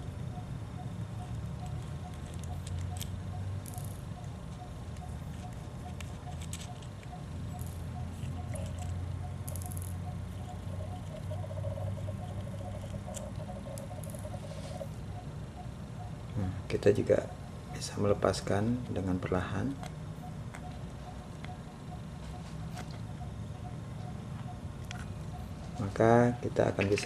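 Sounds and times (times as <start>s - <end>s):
steady low hum: 0.0s - 27.0s
metal clicks and scrapes: 4.9s - 11.3s.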